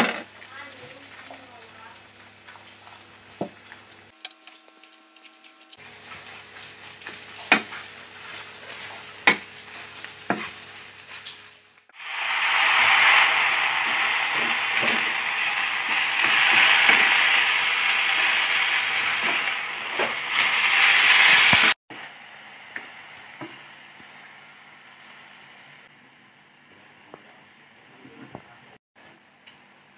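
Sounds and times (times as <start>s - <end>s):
food stir-frying in a pan: 0.0s - 25.7s
loud sizzle: 0.0s - 25.9s
wooden spatula scraping pan: 4.4s - 11.3s.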